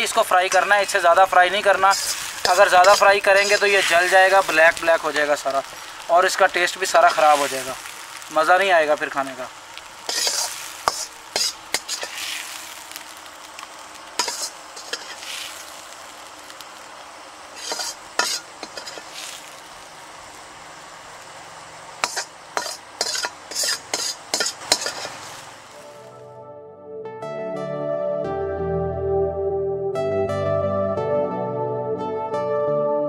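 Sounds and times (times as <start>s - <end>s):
oil sizzling: 0.0s - 26.1s
metal spoon scraping a pan: 1.8s - 4.5s, 10.0s - 12.6s, 14.2s - 15.6s, 17.6s - 19.4s, 22.0s - 25.5s.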